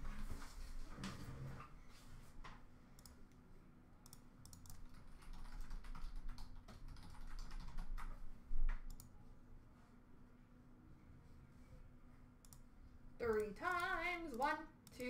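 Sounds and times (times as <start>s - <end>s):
computer keyboard typing: 4.0s - 8.2s, 13.2s - 15.0s.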